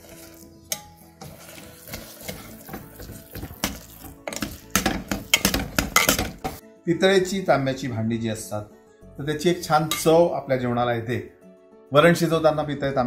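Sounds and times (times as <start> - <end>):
steel ladle clinking on metal pot: 3.6 - 6.6, 9.9 - 10.2.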